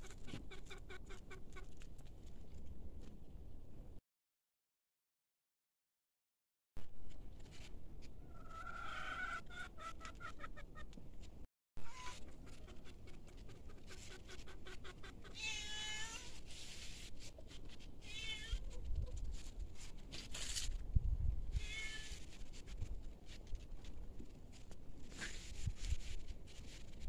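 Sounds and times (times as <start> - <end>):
cat meowing: 15.4 - 16.3, 18.0 - 18.7, 21.6 - 22.2.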